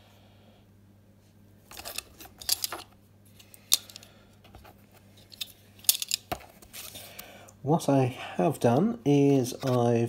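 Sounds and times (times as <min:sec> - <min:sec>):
faint steady hum: 0:00.0 - 0:10.0
card scraping and rustling: 0:01.6 - 0:07.2, 0:09.5 - 0:10.0.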